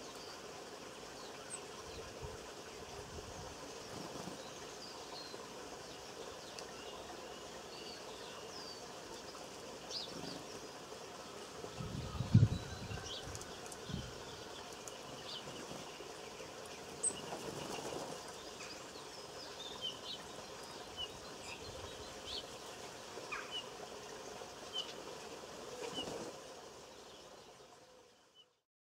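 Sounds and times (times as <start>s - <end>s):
small birds chirping: 3.6s - 28.6s
wings fluttering: 3.7s - 4.4s, 10.0s - 10.6s, 11.8s - 18.7s, 25.6s - 26.6s.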